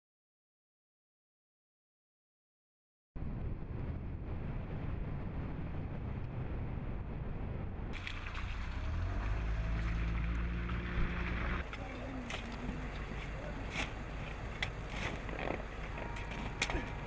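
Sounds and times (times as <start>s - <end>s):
wind on microphone: 3.2s - 11.6s
road noise from moving vehicle: 4.2s - 17.0s
truck engine humming: 8.0s - 17.0s.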